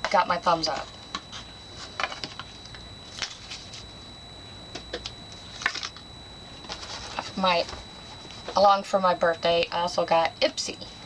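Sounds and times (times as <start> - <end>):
cosmetic packaging clicks and rustles: 0.7 - 3.8, 4.7 - 6.0.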